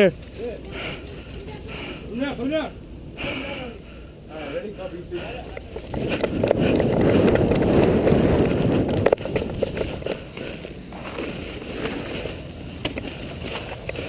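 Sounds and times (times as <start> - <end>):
scuffs and clicks: 5.5 - 14.0
wind rumbling on microphone: 5.6 - 14.0
footsteps running on dirt: 5.8 - 14.0.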